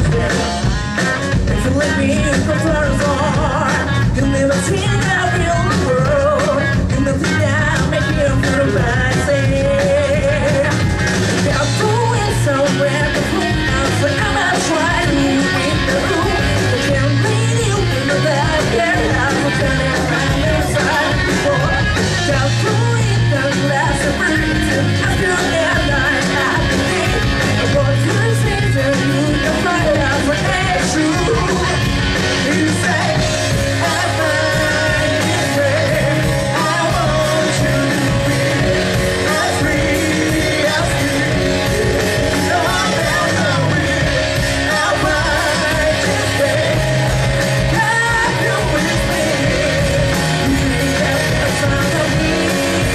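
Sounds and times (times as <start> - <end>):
electric bass: 0.0 - 52.9
electric guitar: 0.0 - 52.9
lead vocalist singing: 0.0 - 52.9.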